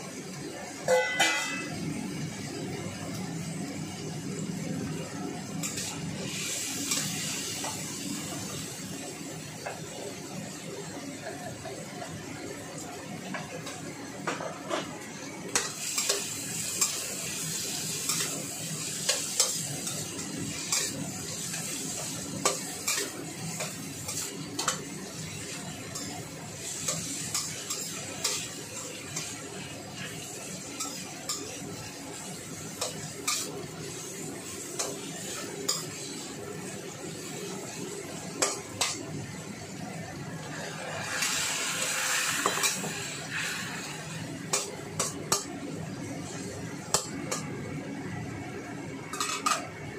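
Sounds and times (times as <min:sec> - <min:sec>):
vegetables sizzling: 0:00.1 - 0:49.9
spatula clanking on wok: 0:00.9 - 0:01.7.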